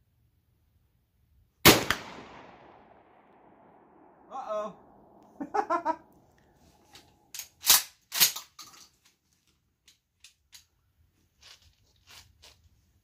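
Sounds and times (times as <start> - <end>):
shotgun firing: 1.6 - 4.2.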